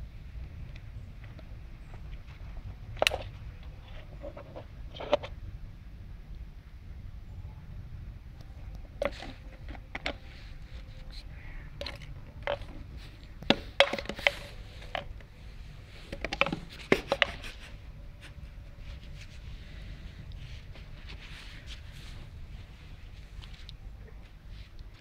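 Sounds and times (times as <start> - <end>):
plastic bottle knocking and clattering: 13.4 - 15.2, 16.1 - 17.4.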